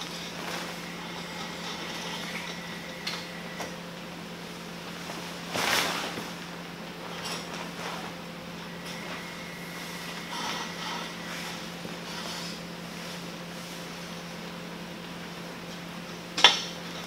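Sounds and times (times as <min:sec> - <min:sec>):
steady low hum: 0:00.0 - 0:17.0
nylon canopy rustling: 0:04.9 - 0:08.2.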